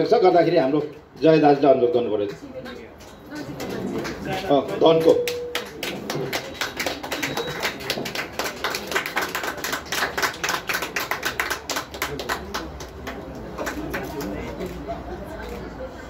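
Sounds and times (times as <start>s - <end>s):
small audience clapping: 2.2s - 14.9s.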